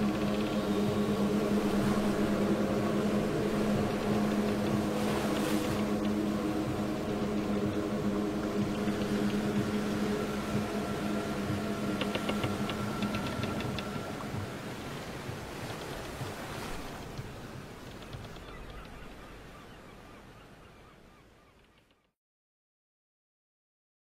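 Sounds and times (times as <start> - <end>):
low ambient drone: 0.0 - 16.9.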